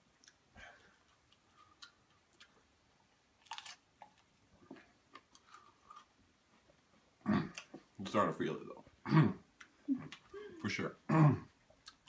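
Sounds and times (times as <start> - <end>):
chewing with mouth clicks: 0.2 - 2.7, 11.7 - 12.0.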